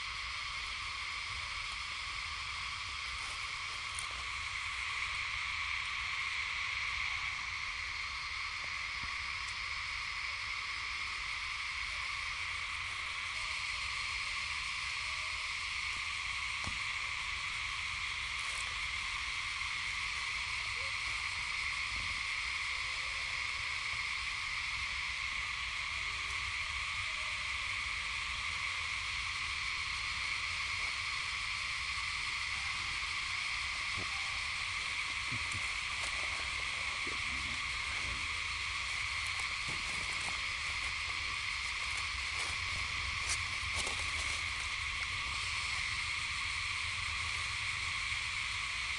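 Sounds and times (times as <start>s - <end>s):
insect chorus drone: 0.0s - 48.9s.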